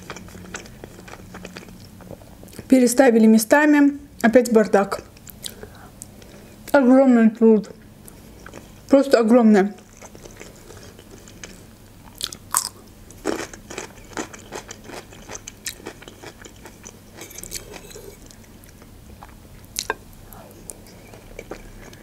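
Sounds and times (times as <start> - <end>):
person chewing food: 0.0 - 2.6, 8.0 - 8.8, 9.8 - 22.0.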